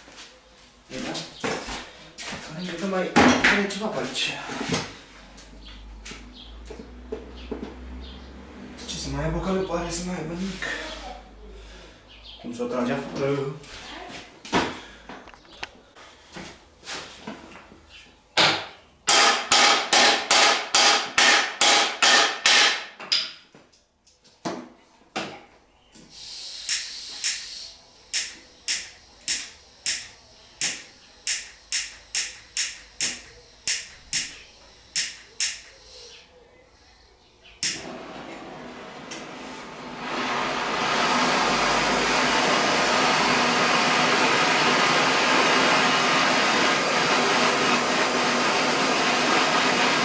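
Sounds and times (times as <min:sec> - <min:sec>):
hammer striking steel frame: 0:18.4 - 0:23.4, 0:28.2 - 0:34.3, 0:35.0 - 0:35.7.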